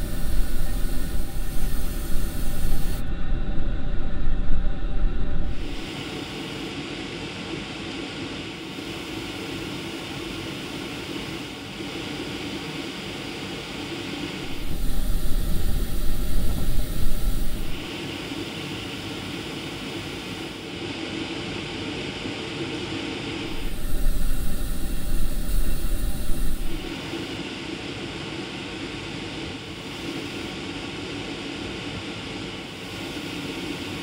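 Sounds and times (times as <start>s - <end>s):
airbrush hissing: 0.0s - 3.0s, 5.5s - 6.7s, 14.4s - 17.9s, 23.4s - 27.3s
low hum: 0.0s - 5.8s, 14.4s - 17.9s, 23.4s - 26.9s.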